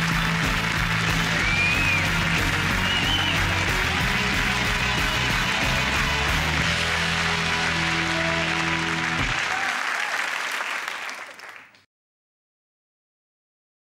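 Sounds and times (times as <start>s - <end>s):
closing theme music: 0.0s - 9.7s
studio audience applauding: 0.0s - 11.9s.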